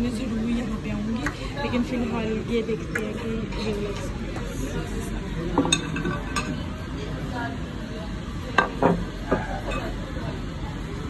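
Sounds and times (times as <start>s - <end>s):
dining room hum: 0.0s - 11.0s
tableware clinking: 5.6s - 6.7s, 8.6s - 10.0s.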